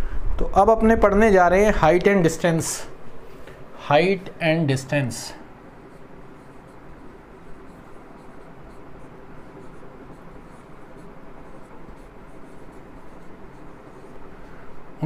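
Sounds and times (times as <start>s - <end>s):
room hiss: 0.0s - 15.0s
marker scratching on whiteboard: 5.6s - 14.5s.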